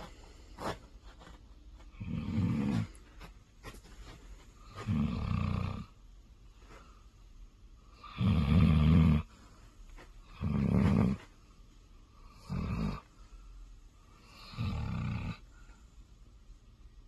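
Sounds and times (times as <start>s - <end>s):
dog snoring loudly: 2.0s - 3.0s, 4.8s - 6.0s, 8.0s - 9.3s, 10.3s - 11.2s, 12.3s - 13.1s, 14.2s - 15.4s.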